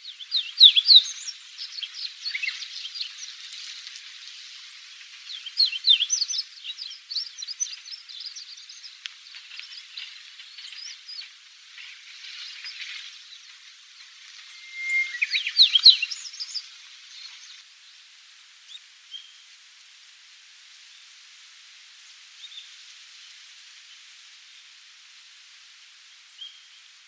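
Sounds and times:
bird twittering: 14.4 - 16.6.

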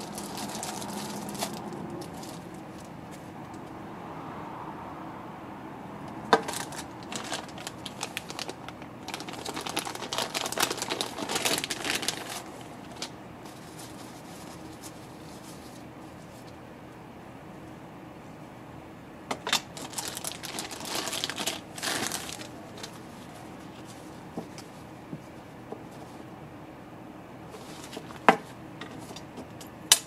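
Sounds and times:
plastic bag crinkling: 0.0 - 2.9, 6.4 - 15.8, 19.4 - 24.2, 27.5 - 28.2.

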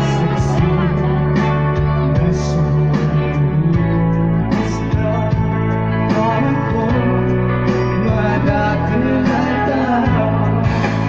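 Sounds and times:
bass line: 0.0 - 11.0
live band music over loudspeakers: 0.0 - 11.0
person singing: 0.0 - 11.0.

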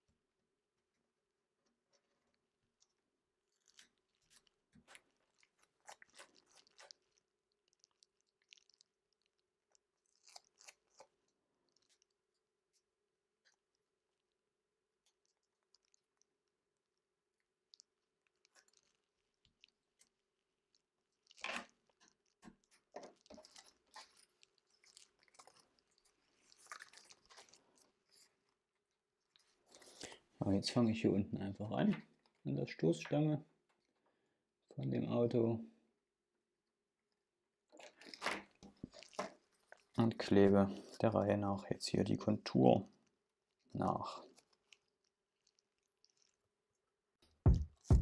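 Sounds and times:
paper and tape crinkling: 1.9 - 7.3, 21.3 - 28.7, 37.8 - 41.1.

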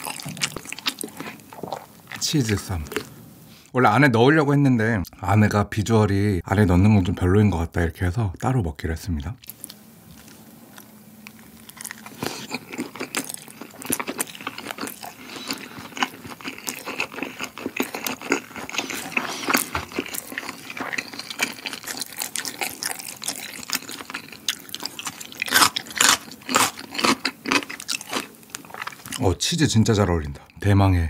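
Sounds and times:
close-miked chewing: 0.0 - 3.1, 9.4 - 29.3.

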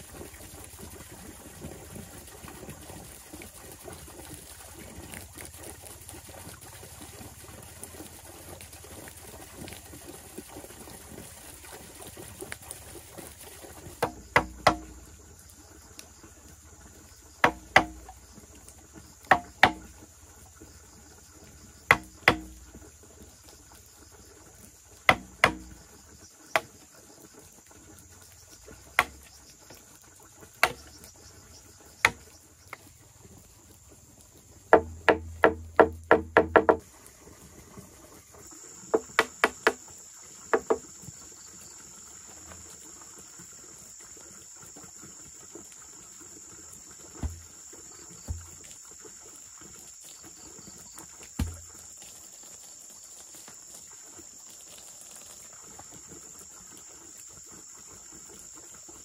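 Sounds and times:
high drone of insects: 12.4 - 59.0
sharp knocking blows: 14.0 - 14.9, 17.4 - 18.1, 19.3 - 19.9, 21.9 - 22.6, 25.1 - 25.7, 34.8 - 36.8.

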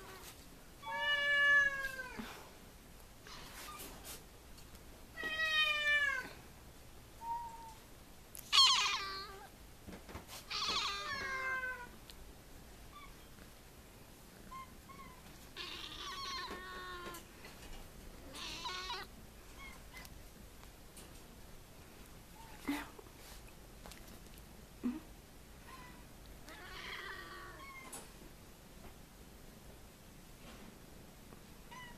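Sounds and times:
kittens meowing: 8.5 - 9.5, 14.5 - 17.2, 18.3 - 20.1.

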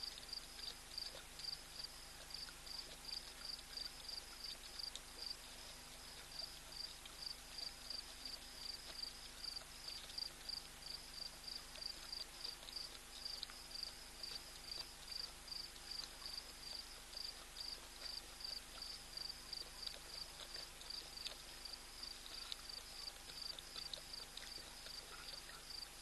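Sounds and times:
insect chirping: 22.0 - 23.6.

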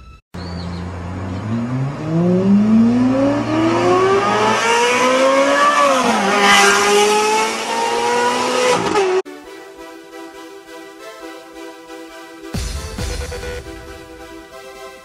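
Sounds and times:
race car engine revving: 0.6 - 9.2.

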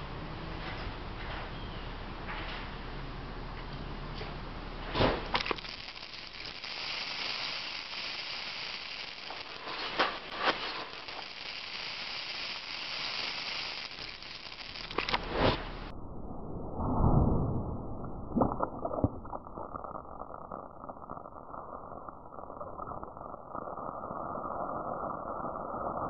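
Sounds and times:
sharp pops: 4.8 - 15.9
sprinkler spraying with hiss: 5.0 - 15.9.

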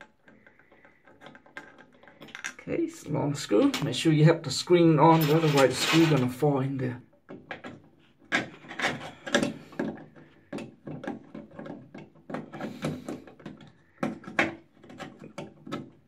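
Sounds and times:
metal clicks and rattles: 0.0 - 2.7.

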